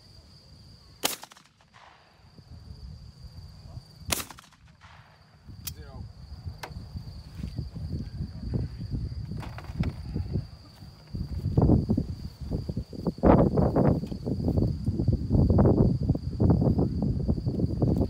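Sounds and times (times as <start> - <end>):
shotgun shots with echo: 1.0 - 2.2, 4.1 - 5.2.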